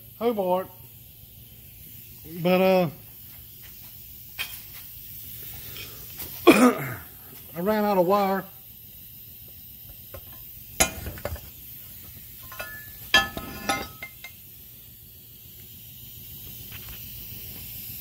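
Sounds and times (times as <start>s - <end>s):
metal clinking and knocking: 10.1s - 11.5s, 12.4s - 14.4s.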